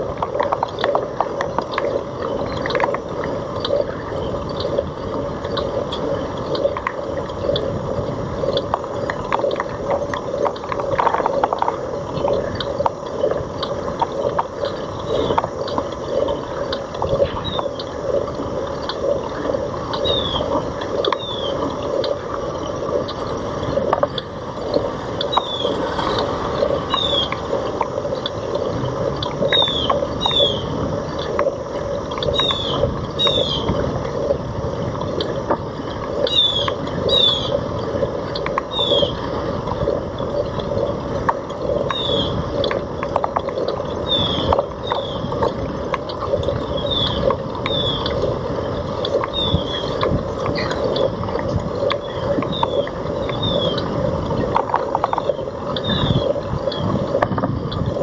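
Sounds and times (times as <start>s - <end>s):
bicycle rattling and rolling: 0.0s - 58.0s.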